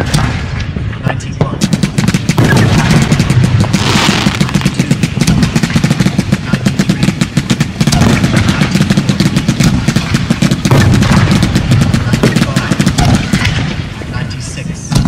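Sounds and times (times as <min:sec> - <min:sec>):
fireworks firing and bursting: 0:00.0 - 0:15.0
fireworks hiss: 0:03.7 - 0:04.7.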